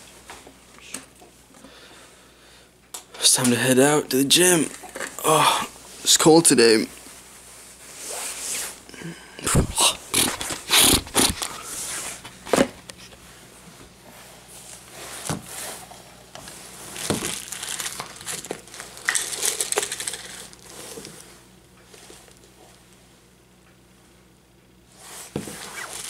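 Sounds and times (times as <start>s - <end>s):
plastic bag crinkling: 10.0s - 11.8s, 16.8s - 20.9s.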